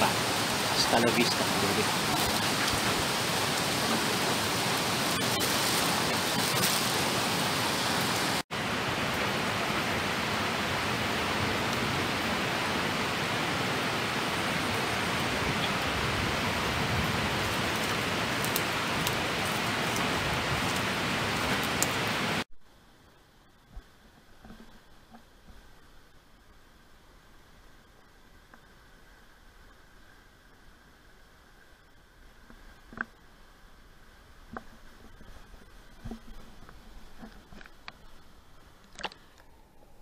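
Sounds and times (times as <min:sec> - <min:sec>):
heavy rain hissing: 0:00.0 - 0:23.5.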